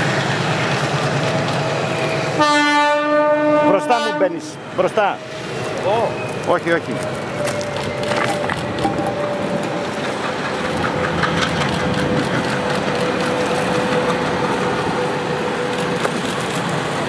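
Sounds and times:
locomotive engine tone: 0:00.0 - 0:16.0
wheels clicking on track: 0:05.6 - 0:17.0.

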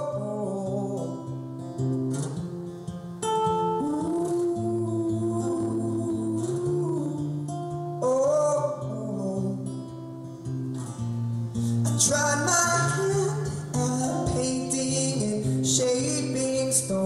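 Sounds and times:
man singing: 0:00.0 - 0:01.4, 0:03.7 - 0:09.9, 0:11.8 - 0:17.0
acoustic guitar: 0:00.0 - 0:17.0.

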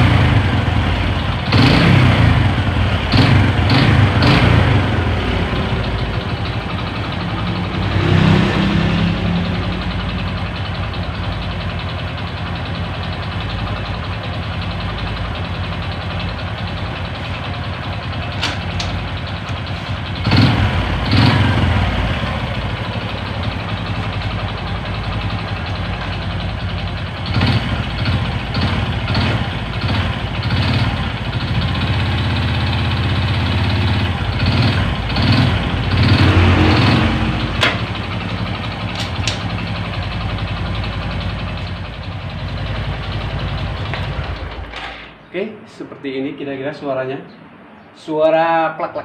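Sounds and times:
motorcycle engine revving: 0:00.0 - 0:45.2
rattling engine knock: 0:09.6 - 0:45.1.

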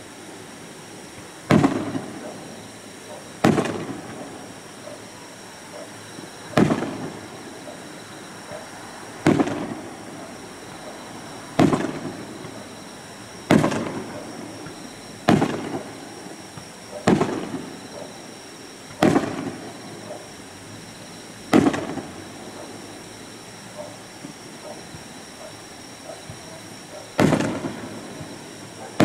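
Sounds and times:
firework shells booming: 0:01.4 - 0:02.6, 0:03.4 - 0:04.5, 0:05.8 - 0:07.8, 0:09.2 - 0:10.9, 0:11.5 - 0:12.8, 0:13.4 - 0:18.1, 0:18.9 - 0:20.2, 0:21.5 - 0:22.8, 0:26.2 - 0:29.0.

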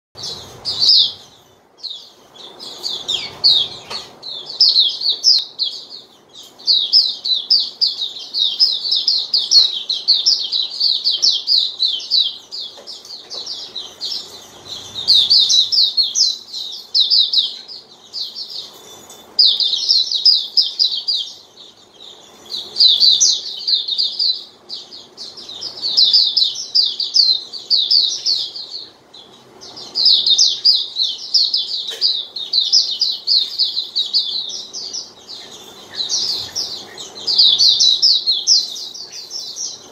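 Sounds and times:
bird twittering: 0:00.2 - 0:39.9.

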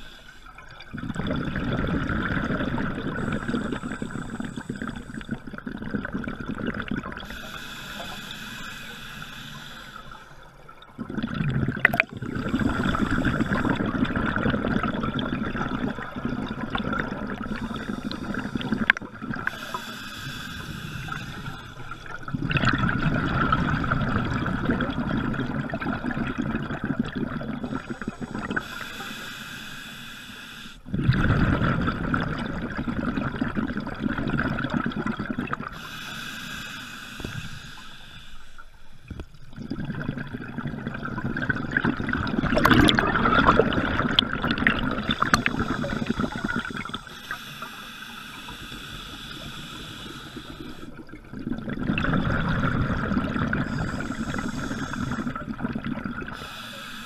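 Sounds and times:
hissing inhalation through regulator: 0:00.0 - 0:00.6, 0:03.1 - 0:05.4, 0:07.2 - 0:10.5, 0:12.3 - 0:14.0, 0:17.3 - 0:22.4, 0:27.6 - 0:30.9, 0:35.7 - 0:39.1, 0:44.9 - 0:51.1, 0:53.4 - 0:55.6, 0:56.2 - 0:57.0
exhaled bubbles rushing underwater: 0:00.0 - 0:29.1, 0:30.9 - 0:36.0, 0:38.5 - 0:47.8, 0:48.4 - 0:56.9.

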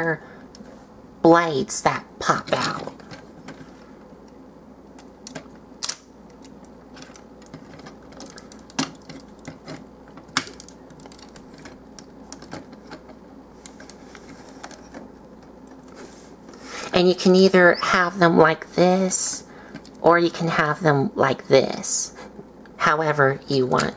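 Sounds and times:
plastic toy parts clicking: 0:05.3 - 0:14.9.

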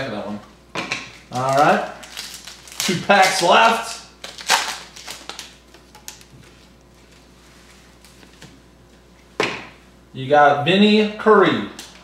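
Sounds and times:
foil pack tearing and crinkling: 0:01.3 - 0:06.3.

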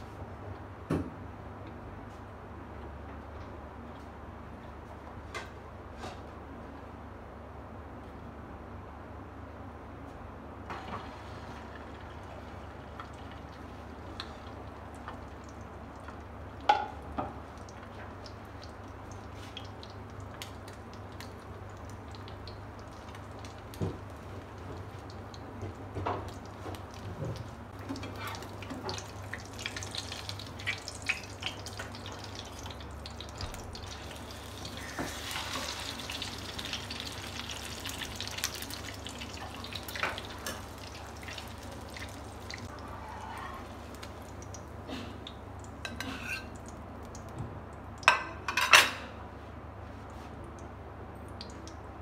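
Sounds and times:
cutlet frying in oil: 0:10.7 - 0:48.7.

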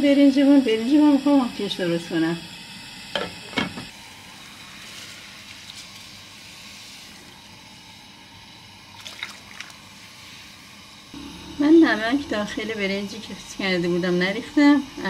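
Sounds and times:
rice and water pouring: 0:08.9 - 0:09.9.

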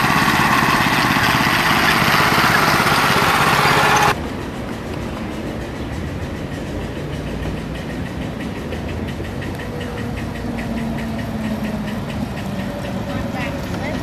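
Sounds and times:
small gas engine running: 0:00.0 - 0:04.2, 0:08.2 - 0:14.0.

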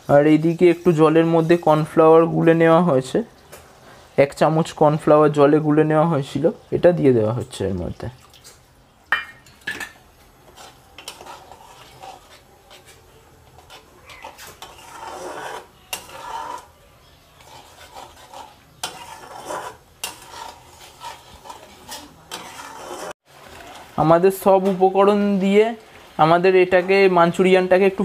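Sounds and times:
metal spatula scraping a pan: 0:00.0 - 0:02.6, 0:09.6 - 0:23.9.

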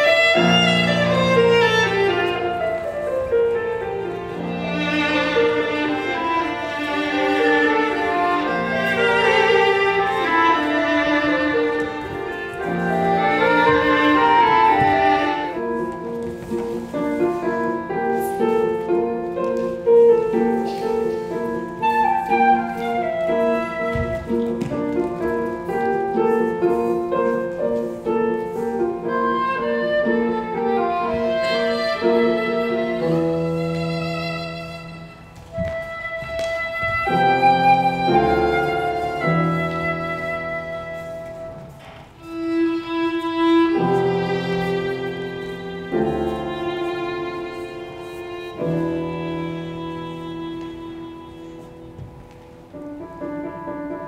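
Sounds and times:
piano: 0:00.0 - 0:54.0
viola: 0:00.0 - 0:54.0
flute: 0:08.4 - 0:15.8, 0:20.8 - 0:24.6, 0:29.1 - 0:34.8, 0:35.6 - 0:41.8.

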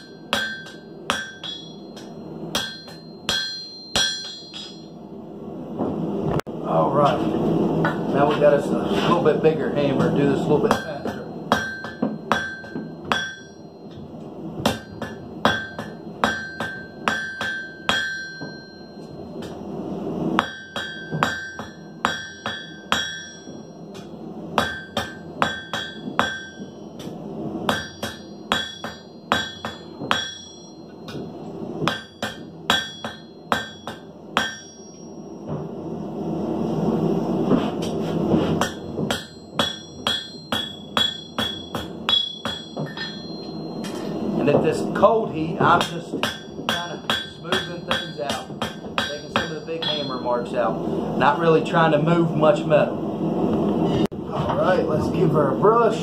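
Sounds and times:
hammer striking steel on anvil: 0:00.0 - 0:05.0, 0:09.9 - 0:19.6, 0:20.4 - 0:35.7, 0:37.8 - 0:44.2, 0:45.0 - 0:50.5.

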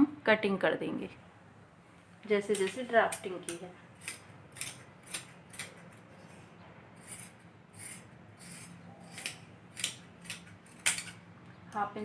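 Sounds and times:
scissors snipping thick fabric: 0:02.6 - 0:06.1, 0:07.0 - 0:11.2.

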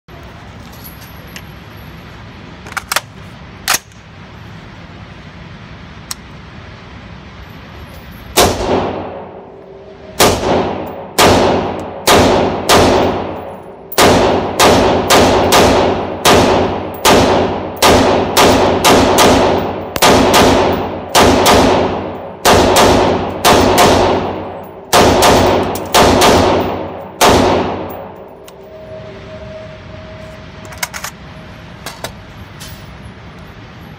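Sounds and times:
rifle shots echoing indoors: 0:08.4 - 0:09.6, 0:10.2 - 0:28.5.

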